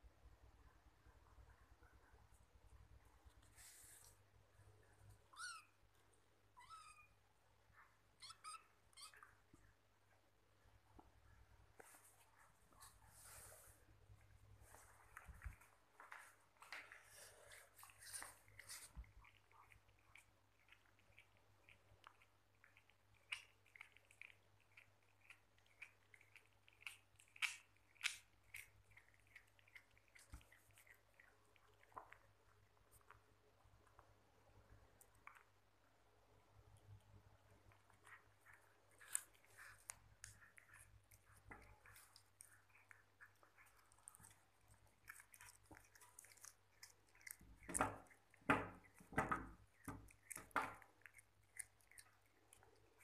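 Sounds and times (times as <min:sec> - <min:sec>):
kitten chewing raw meat: 0:10.8 - 0:53.0.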